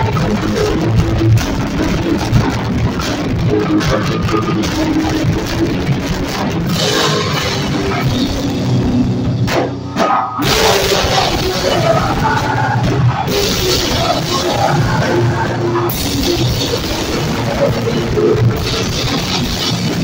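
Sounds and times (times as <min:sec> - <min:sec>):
distorted electric guitar: 0:00.0 - 0:20.0
drum kit: 0:00.0 - 0:20.0
heavy rock band playing: 0:00.0 - 0:20.0.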